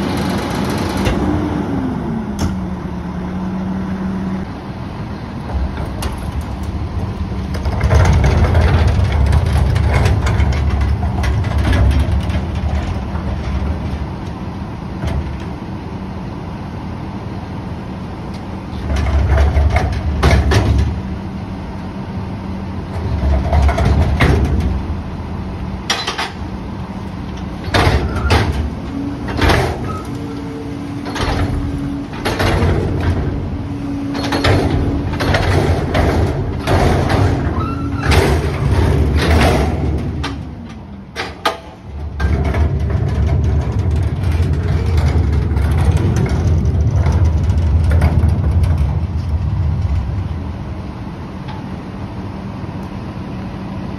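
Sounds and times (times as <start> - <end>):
garbage truck diesel engine: 0.0 - 53.9
metal clanks and bangs: 5.5 - 14.1, 27.6 - 50.2.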